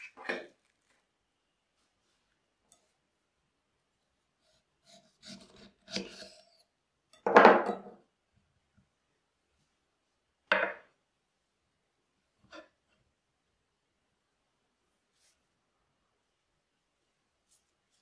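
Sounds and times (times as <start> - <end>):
knife cutting and scraping: 4.4 - 6.7.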